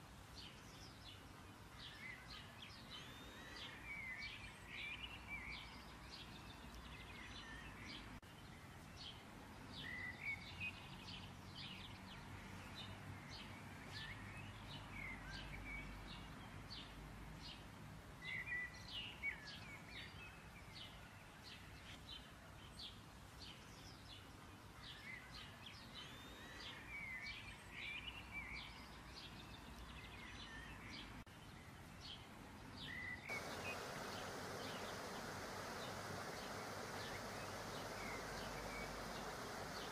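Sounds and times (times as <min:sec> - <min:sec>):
small birds chirping: 0:00.2 - 0:39.9
faint room noise: 0:33.3 - 0:39.9
steady hiss: 0:33.3 - 0:39.9.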